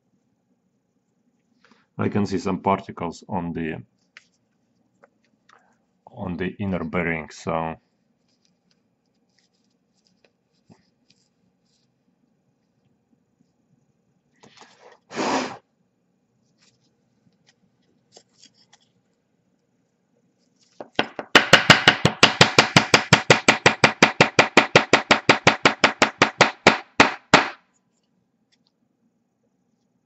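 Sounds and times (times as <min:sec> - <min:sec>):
short scrape: 0:14.6 - 0:15.6.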